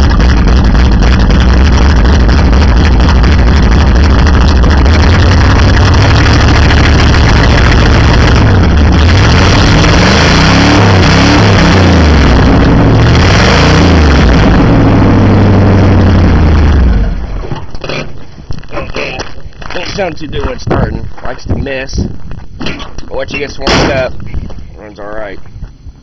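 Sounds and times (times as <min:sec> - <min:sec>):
loud truck engine idling and revving: 0:00.0 - 0:18.0.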